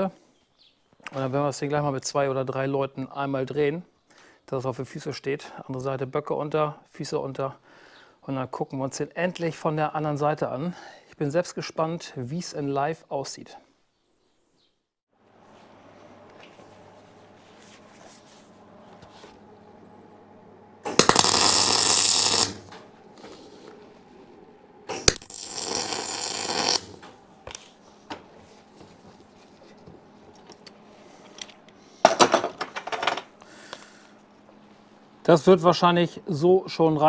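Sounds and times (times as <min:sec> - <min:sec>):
welder arc crackling: 0:20.8 - 0:23.8, 0:24.9 - 0:27.6.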